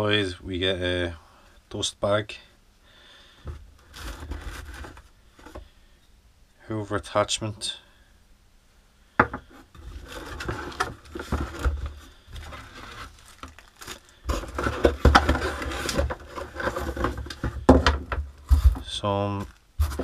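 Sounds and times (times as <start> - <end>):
cardboard box scraping and knocking: 3.8 - 5.6, 9.2 - 20.0
plastic wrapping crinkling: 10.0 - 17.5.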